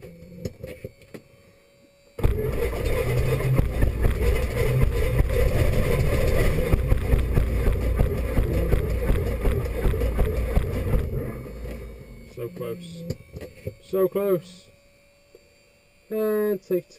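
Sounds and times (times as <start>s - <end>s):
aircraft engine and propeller: 2.2s - 15.4s.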